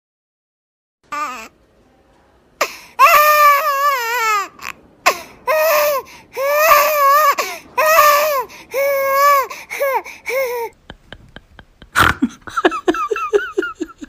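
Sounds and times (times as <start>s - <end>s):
baby crying: 1.1s - 1.5s, 2.6s - 10.8s.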